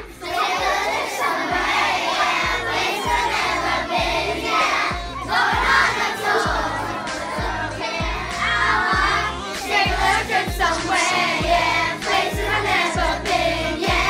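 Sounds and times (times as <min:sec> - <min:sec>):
children singing: 0:00.0 - 0:14.0
pop song with kick drum: 0:01.5 - 0:01.8, 0:02.4 - 0:14.0.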